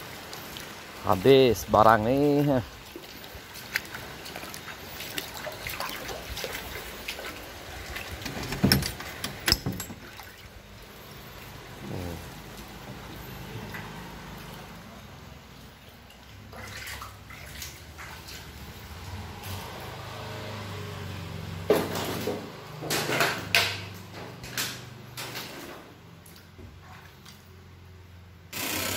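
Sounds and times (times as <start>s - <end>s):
water trickling and dripping: 0.0s - 21.7s, 25.9s - 28.2s.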